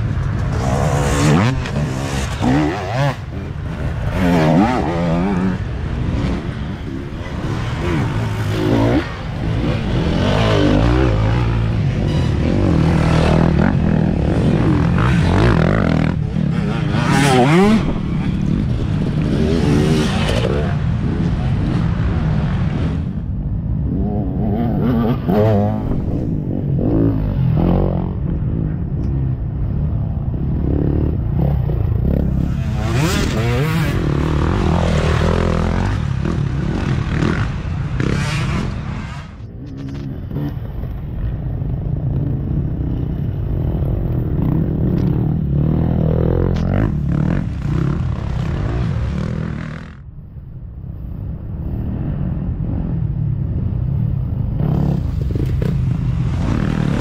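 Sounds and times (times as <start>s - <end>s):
dirt bike engines revving: 0.0s - 50.2s, 50.9s - 57.0s.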